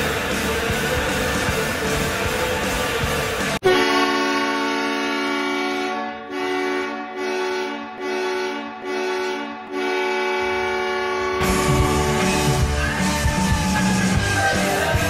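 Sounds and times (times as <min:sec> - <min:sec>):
rock music: 0:00.0 - 0:03.7, 0:11.2 - 0:15.0
goal horn blasts: 0:03.6 - 0:12.3.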